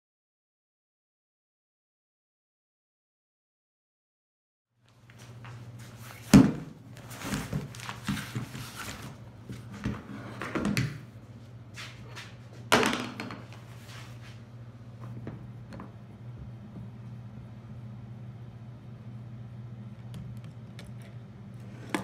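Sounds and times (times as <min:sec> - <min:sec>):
steady low hum: 0:04.8 - 0:22.0.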